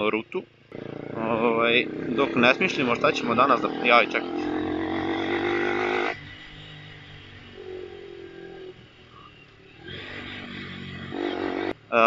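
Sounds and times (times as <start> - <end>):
scooter engine running: 0.5 - 12.0.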